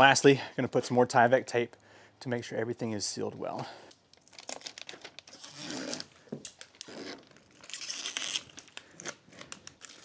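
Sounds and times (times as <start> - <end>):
tape tearing and crinkling: 4.1 - 10.0.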